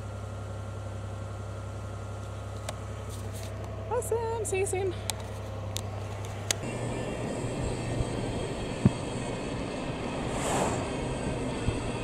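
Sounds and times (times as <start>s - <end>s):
car engine and road noise: 4.9s - 12.0s
wind noise: 8.8s - 12.0s.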